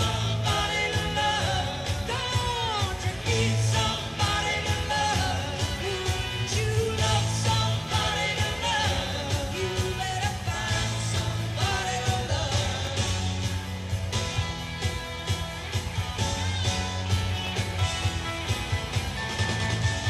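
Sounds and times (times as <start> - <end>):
lead singer singing: 0.0 - 13.8
rock band playing live: 0.0 - 20.0.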